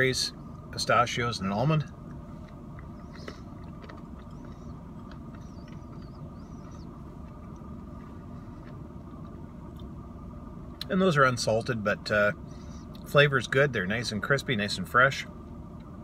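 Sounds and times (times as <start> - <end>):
car cabin hum: 0.0 - 16.0
chewing crunchy food: 2.0 - 10.0.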